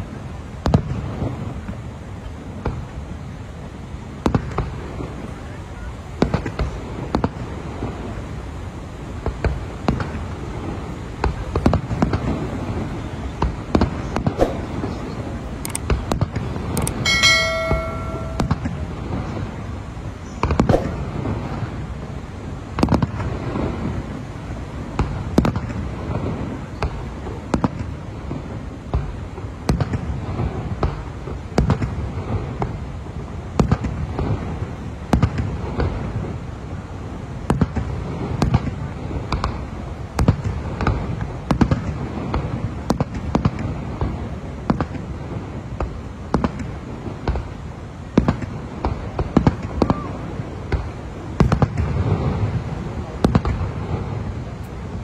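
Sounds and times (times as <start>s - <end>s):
fireworks bursting: 9.1s - 24.2s, 37.4s - 55.0s.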